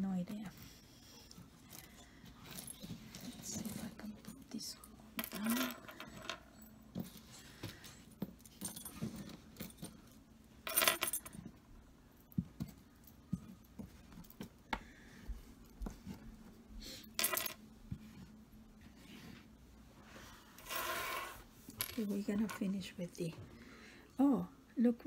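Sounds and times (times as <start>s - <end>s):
metal earrings clinking: 1.6s - 6.9s.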